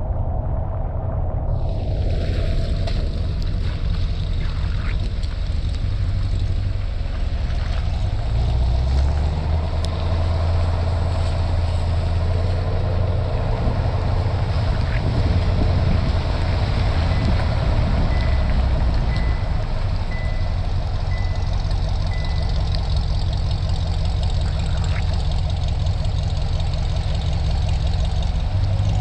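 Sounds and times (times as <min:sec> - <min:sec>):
wind noise on microphone: 0:00.0 - 0:06.9, 0:07.5 - 0:21.4
car exhaust droning: 0:00.0 - 0:29.0.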